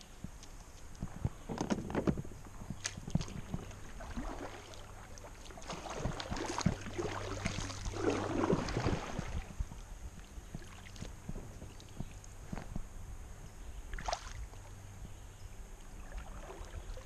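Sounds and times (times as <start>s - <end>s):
paddle splashing in water: 2.8s - 9.6s, 13.9s - 14.4s.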